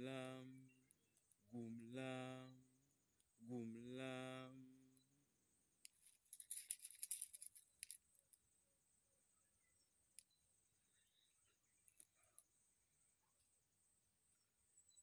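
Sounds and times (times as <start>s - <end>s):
prayer beads clicking: 5.8s - 8.3s.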